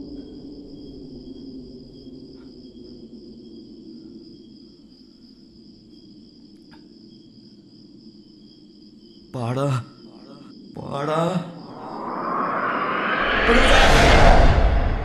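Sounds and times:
crickets chirring: 0.0s - 15.0s
faint ticks: 6.5s - 6.9s
low drone: 11.5s - 15.0s.

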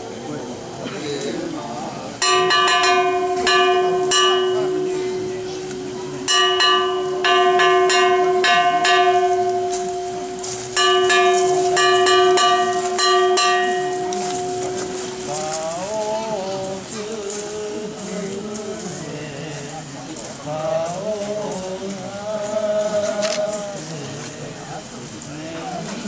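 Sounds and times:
small metal bell ringing: 2.2s - 17.8s.

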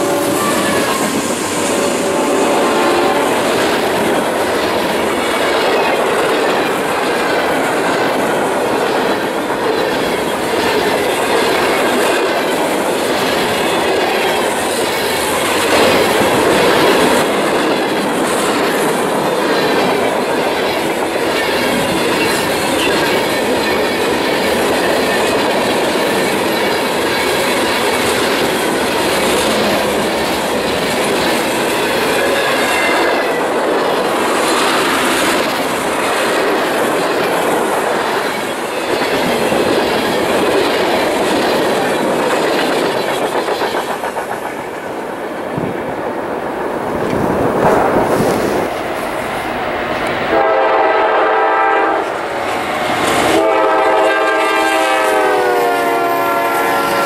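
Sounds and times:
high wheel squeal: 0.0s - 3.6s
freight train rumble and rattle: 0.0s - 57.0s.

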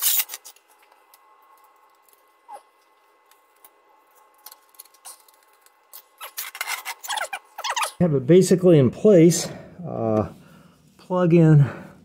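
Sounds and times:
short squeak: 6.0s - 8.0s.

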